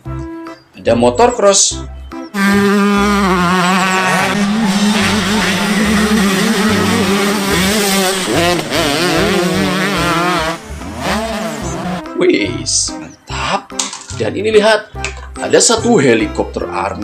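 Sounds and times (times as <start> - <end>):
dirt bike engines revving: 2.3 - 12.1.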